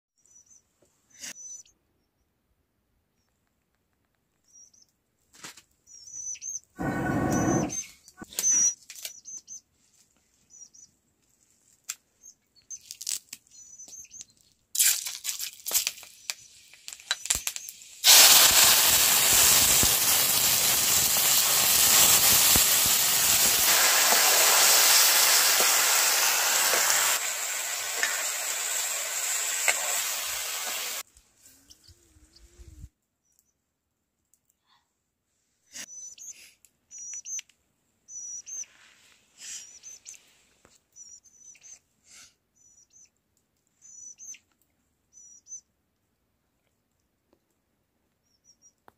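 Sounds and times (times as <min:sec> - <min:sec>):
faint bird chirps: 0:00.2 - 0:02.4, 0:03.1 - 0:03.4, 0:04.4 - 0:05.0, 0:05.8 - 0:09.7, 0:10.4 - 0:11.0, 0:13.5 - 0:14.5, 0:31.5 - 0:33.6, 0:35.6 - 0:37.4, 0:38.1 - 0:38.8, 0:39.4 - 0:40.3, 0:40.9 - 0:41.9, 0:42.5 - 0:44.5, 0:45.1 - 0:45.7, 0:48.2 - 0:48.9
hot wok sizzling: 0:15.6 - 0:31.1.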